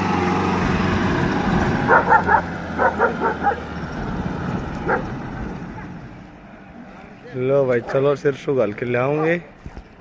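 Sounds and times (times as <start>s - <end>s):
truck engine running: 0.0s - 7.2s
dog barking: 1.9s - 3.7s, 4.8s - 5.1s, 9.1s - 9.6s.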